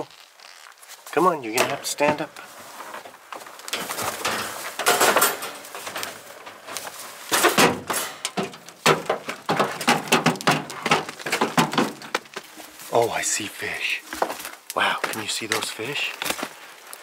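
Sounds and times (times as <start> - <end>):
hooves knocking on metal truck bed: 1.5 - 2.4, 3.7 - 12.4.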